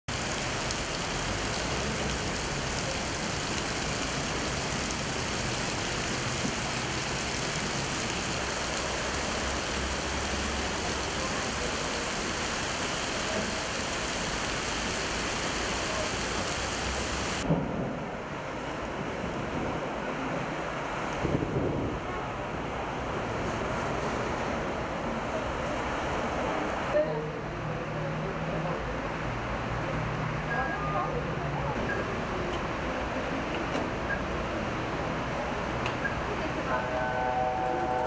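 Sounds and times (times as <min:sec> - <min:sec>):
heavy rain pouring on street: 0:00.1 - 0:38.0
wind on microphone: 0:21.2 - 0:22.2.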